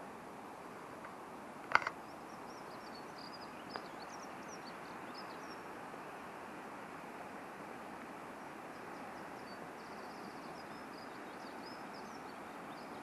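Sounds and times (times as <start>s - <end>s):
steady outdoor hiss: 0.0s - 13.0s
small bird chirping: 1.7s - 5.6s.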